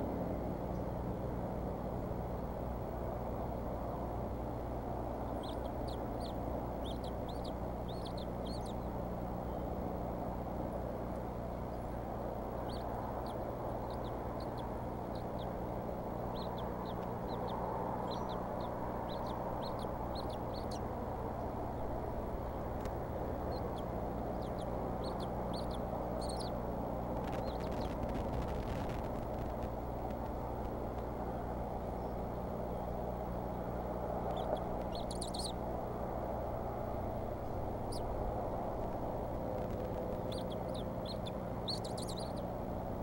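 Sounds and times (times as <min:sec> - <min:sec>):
background rush with low hum: 0:00.0 - 0:43.0
eaglets chirping: 0:05.2 - 0:09.0, 0:11.6 - 0:29.7, 0:34.2 - 0:35.6, 0:37.2 - 0:42.6.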